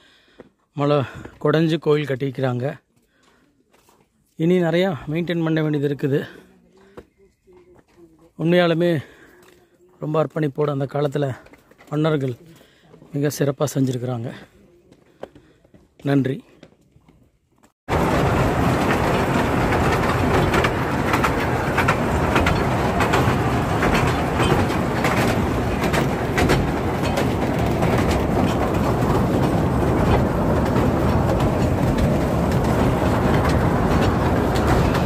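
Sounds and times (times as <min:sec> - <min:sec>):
boat diesel engine rumble: 0:17.9 - 0:35.0
wind gusting on microphone: 0:17.9 - 0:35.0.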